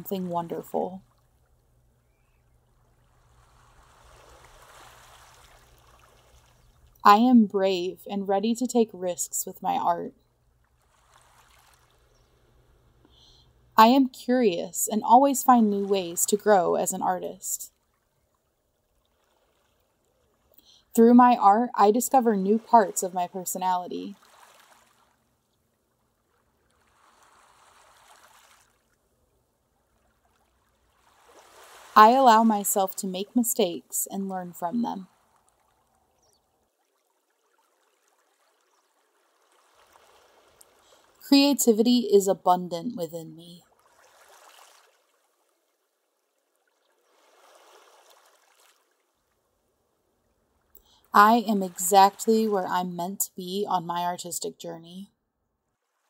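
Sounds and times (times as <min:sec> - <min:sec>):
faint river water rushing: 0:00.0 - 0:07.8, 0:10.3 - 0:13.8, 0:14.8 - 0:21.0, 0:22.4 - 0:33.8, 0:35.0 - 0:41.5, 0:43.6 - 0:52.5.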